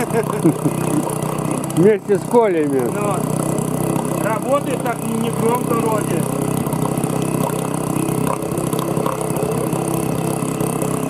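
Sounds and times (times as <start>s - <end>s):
outboard motor idling: 0.0s - 11.0s.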